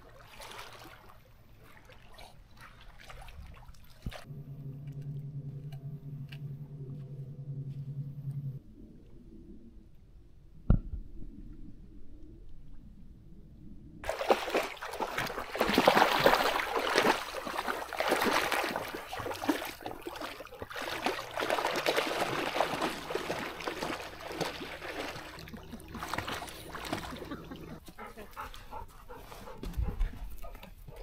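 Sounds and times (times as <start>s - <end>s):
dog making sounds: 25.7s - 31.0s.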